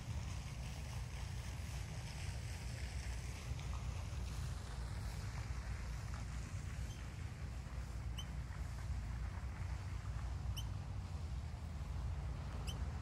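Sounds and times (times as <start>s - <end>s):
bird squeaky chirp: 6.8s - 7.1s, 8.1s - 8.4s, 10.5s - 10.8s, 12.6s - 13.0s.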